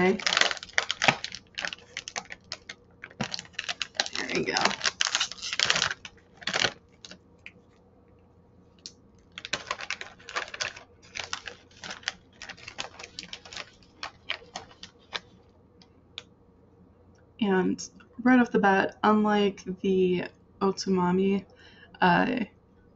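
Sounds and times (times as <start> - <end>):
plastic snack bag crinkling: 0.0 - 7.7, 8.8 - 15.4.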